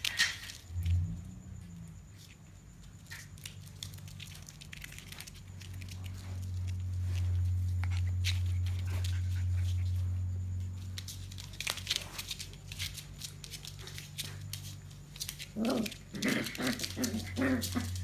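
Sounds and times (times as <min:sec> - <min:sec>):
claws scratching on hard floor: 0:02.1 - 0:18.0
puppies play growling: 0:03.1 - 0:18.0.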